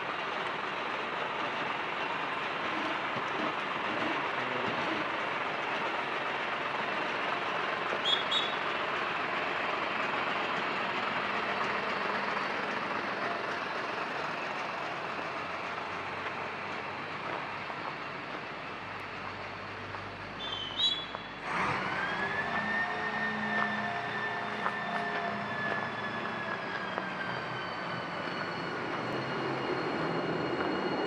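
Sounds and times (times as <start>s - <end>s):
brief squeals: 8.0s - 8.6s, 20.4s - 31.0s
passing vehicle electric whine: 20.7s - 31.0s.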